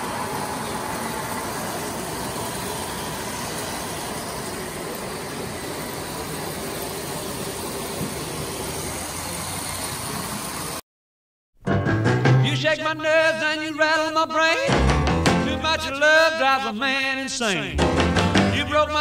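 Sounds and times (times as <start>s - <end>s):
toy train wheels on track: 0.0s - 10.8s.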